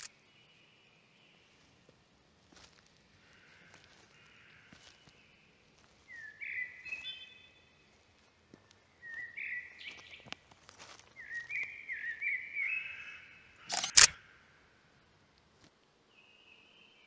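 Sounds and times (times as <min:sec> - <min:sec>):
birds chirping: 0:03.2 - 0:14.4
camera shutter double click: 0:13.7 - 0:14.2.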